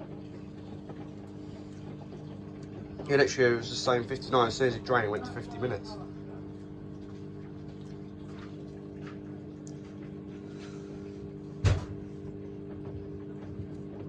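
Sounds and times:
washing machine motor humming: 0:00.0 - 0:14.0
heavy thump: 0:11.6 - 0:12.0.

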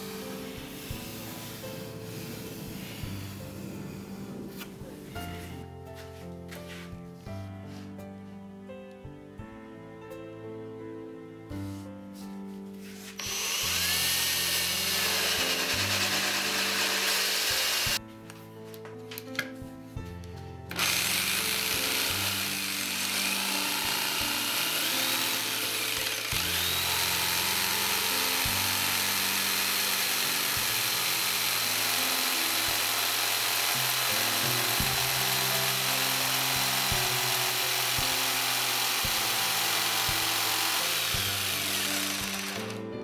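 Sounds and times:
electric jigsaw cutting board: 0:00.0 - 0:03.4, 0:13.2 - 0:18.0, 0:20.7 - 0:42.8
background music: 0:00.0 - 0:43.0.

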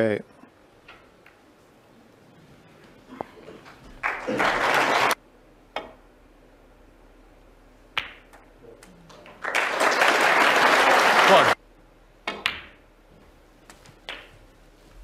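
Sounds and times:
audience applauding: 0:03.6 - 0:05.2, 0:09.4 - 0:11.6
snooker balls clicking: 0:07.9 - 0:08.5, 0:12.2 - 0:12.8, 0:13.7 - 0:14.4.

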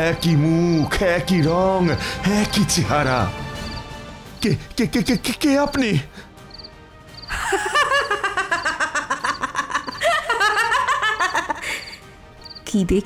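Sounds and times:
background music: 0:00.0 - 0:13.0
young woman giggling laugh: 0:07.3 - 0:12.0.

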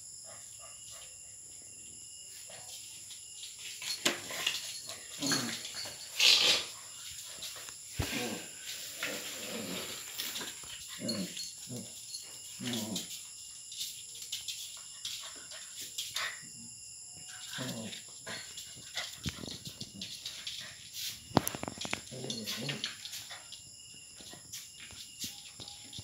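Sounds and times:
puppies growling and barking: 0:04.2 - 0:06.8, 0:07.6 - 0:13.2, 0:21.4 - 0:23.2.

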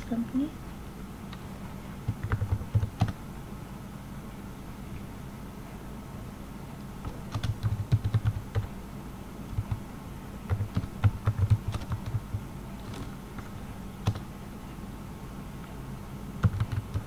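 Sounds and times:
steady low hum: 0:00.0 - 0:17.0
computer keyboard typing: 0:02.0 - 0:03.2, 0:07.0 - 0:08.8, 0:09.5 - 0:09.9, 0:10.5 - 0:14.3, 0:16.4 - 0:17.0.

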